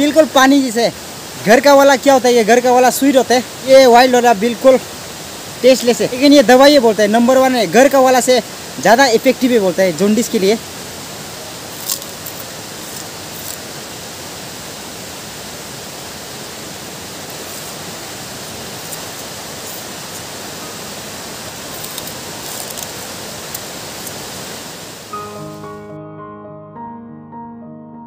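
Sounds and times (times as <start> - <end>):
steady rushing noise: 0.0 - 25.1
faint crunches: 11.7 - 13.6, 21.7 - 24.2
person chewing sugarcane: 21.7 - 23.7.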